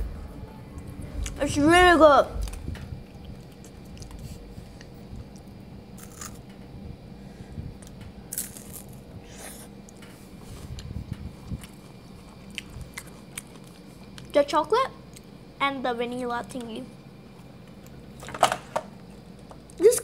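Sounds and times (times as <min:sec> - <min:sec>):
faint chewing of wafer biscuit: 0:02.4 - 0:06.4.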